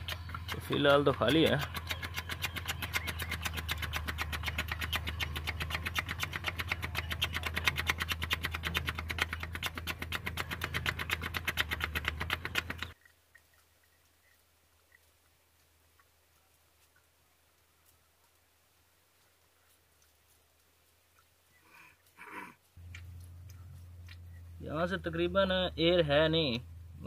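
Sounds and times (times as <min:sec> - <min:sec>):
diesel engine cranking: 0:00.0 - 0:13.0.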